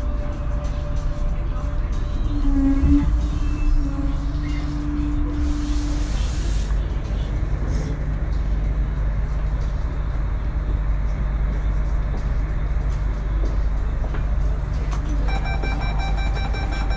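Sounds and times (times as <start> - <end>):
low vehicle rumble: 0.0 - 15.4
noisy hiss: 5.3 - 8.1.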